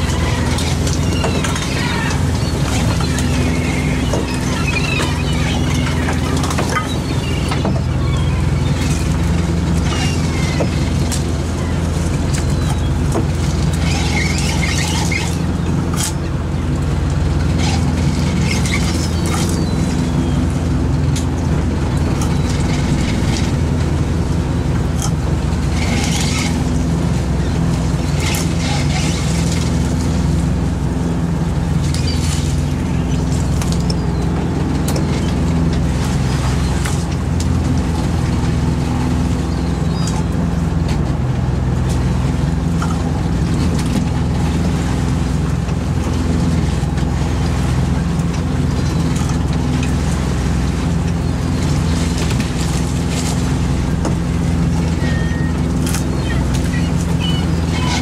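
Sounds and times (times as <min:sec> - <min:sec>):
short high squeals: 0:00.0 - 0:09.2, 0:13.8 - 0:15.6, 0:54.8 - 0:58.0
boat engine and net hauler: 0:00.0 - 0:58.0.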